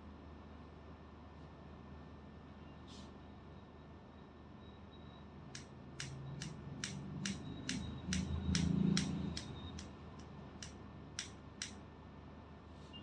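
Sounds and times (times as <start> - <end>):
low background hum: 0.0 - 13.0
scissors snipping hair: 5.6 - 11.8.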